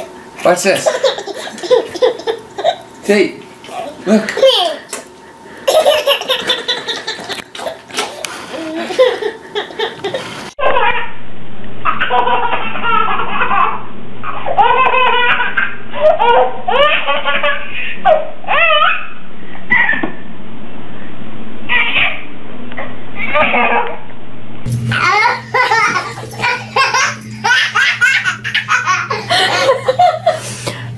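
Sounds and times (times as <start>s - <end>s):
baby laughing: 0.7s - 2.9s, 3.8s - 5.0s, 5.7s - 11.1s, 11.9s - 19.1s, 24.9s - 30.3s
baby squealing laughter: 5.7s - 11.1s, 11.9s - 19.1s, 21.7s - 22.2s.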